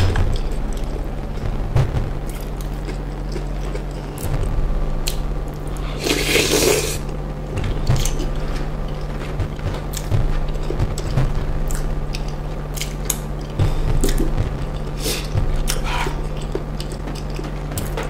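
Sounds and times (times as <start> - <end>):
steady low hum: 0.0 - 18.0
slurping squish: 5.7 - 7.0
wet chewing and squishing: 15.6 - 18.0.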